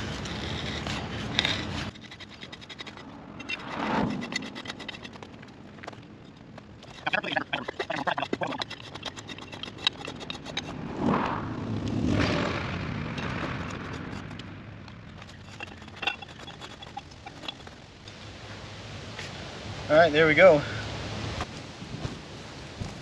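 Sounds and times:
rush of noise: 0.0s - 6.0s, 6.8s - 15.6s
metal bar clinking and rattling: 15.2s - 17.7s.

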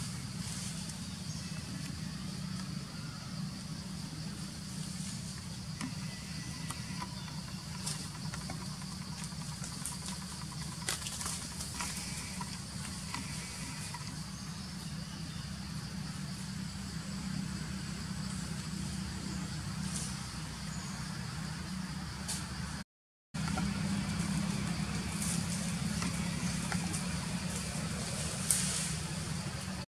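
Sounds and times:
high insect drone: 0.0s - 22.8s, 23.4s - 29.9s
low engine-like hum: 23.4s - 29.8s.

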